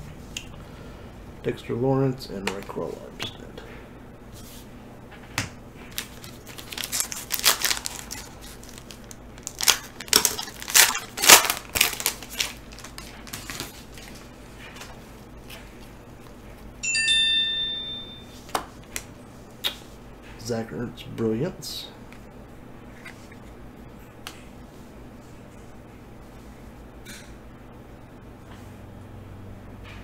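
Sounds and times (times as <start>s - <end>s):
foil wrapper crinkling and tearing: 5.9s - 14.3s
short electronic chime: 16.8s - 18.4s.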